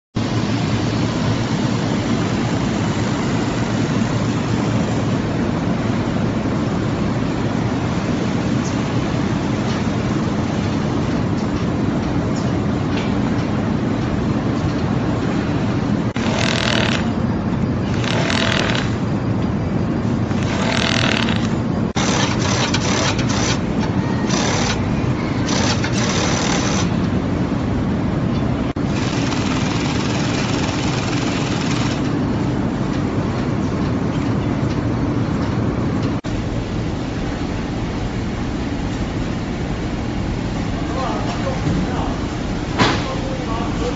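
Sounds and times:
sewing machines humming: 16.0s - 19.1s, 20.2s - 27.0s, 28.8s - 32.2s
sewing machine whirring bursts: 16.2s - 17.1s, 17.8s - 19.1s, 20.3s - 27.0s, 28.8s - 32.1s.

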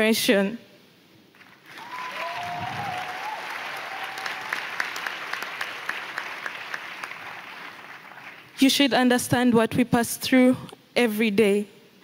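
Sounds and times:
audience applauding: 1.4s - 8.6s
brief pitched cheer: 1.7s - 4.6s.

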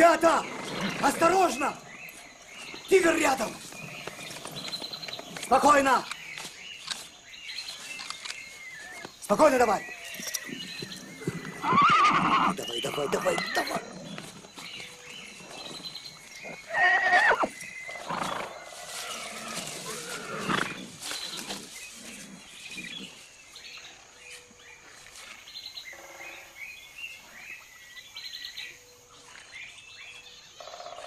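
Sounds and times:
horses neighing: 0.0s - 1.9s, 2.9s - 5.9s, 10.0s - 14.6s, 15.3s - 23.2s.

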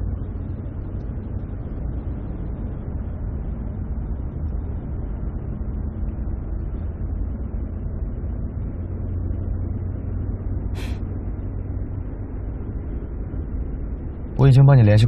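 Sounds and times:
car engine and road noise: 0.0s - 15.0s
brief hiss: 10.8s - 11.0s.

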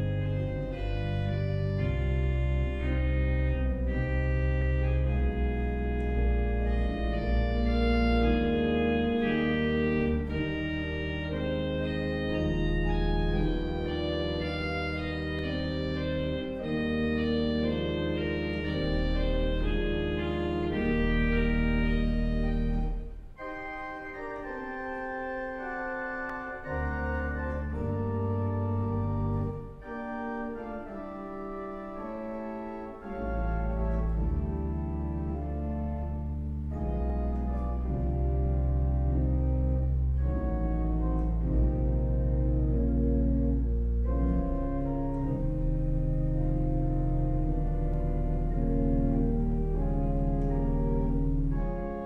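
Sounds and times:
church organ chords: 0.0s - 52.0s
deep organ bass notes: 0.0s - 52.0s.

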